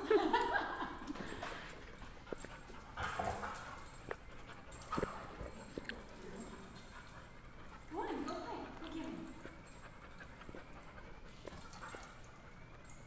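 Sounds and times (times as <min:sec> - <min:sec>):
dogs playing: 0:00.0 - 0:13.0
paws tapping the floor: 0:01.2 - 0:13.0.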